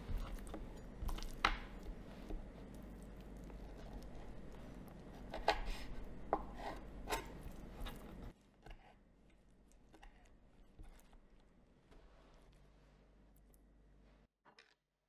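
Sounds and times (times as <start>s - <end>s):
knife cutting meat on board: 5.0s - 8.8s.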